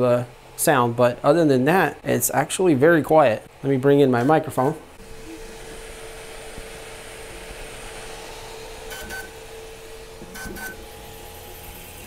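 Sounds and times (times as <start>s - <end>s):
three d printer humming: 3.9s - 12.0s
high-pitched motor chirps: 8.9s - 9.4s.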